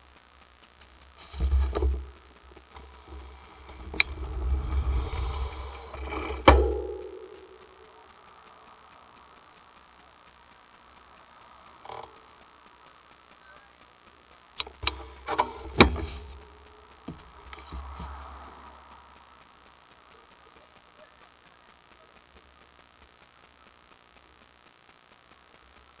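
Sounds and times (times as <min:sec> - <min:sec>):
bicycle freewheel ticking: 0:00.0 - 0:26.0
low rumble: 0:00.9 - 0:11.3.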